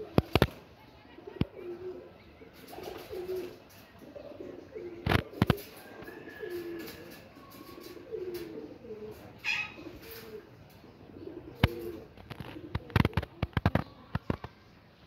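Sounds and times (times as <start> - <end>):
parakeet murmuring calls: 8.7 - 11.5.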